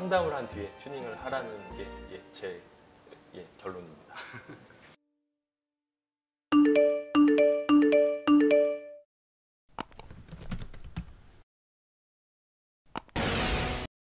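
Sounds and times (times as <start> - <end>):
electronic chime ringtone: 6.5 - 9.0.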